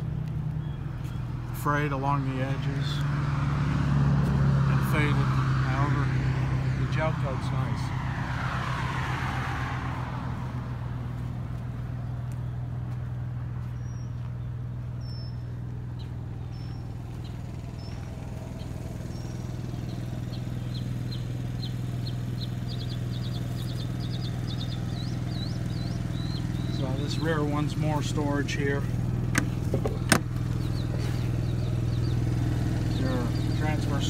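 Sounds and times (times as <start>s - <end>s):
bird chirping: 0.0s - 1.3s, 13.7s - 28.3s, 29.4s - 34.0s
engine humming: 0.0s - 34.0s
vehicle passing: 0.0s - 34.0s.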